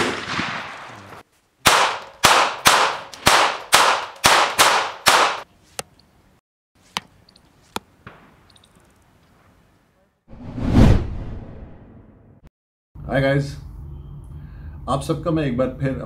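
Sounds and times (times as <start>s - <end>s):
gunshots with ringing tail: 0.0s - 0.8s.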